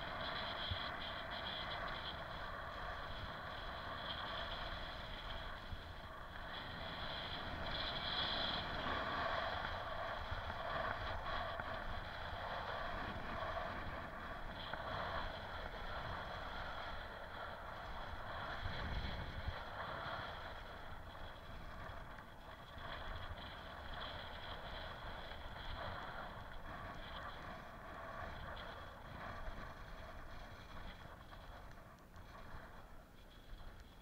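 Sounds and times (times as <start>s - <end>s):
bicycle tyres rolling on concrete: 0.0s - 34.0s
wind rushing over microphone: 0.0s - 34.0s.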